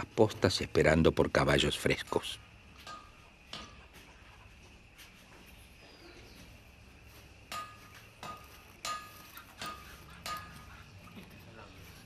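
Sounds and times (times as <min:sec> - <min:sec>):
sharp metallic clinks: 0:01.6 - 0:04.0, 0:07.1 - 0:11.7.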